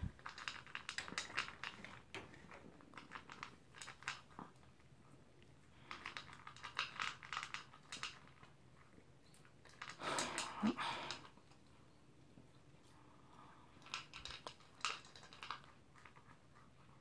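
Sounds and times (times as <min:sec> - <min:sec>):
dog eating from plastic bowl: 0:00.0 - 0:17.0.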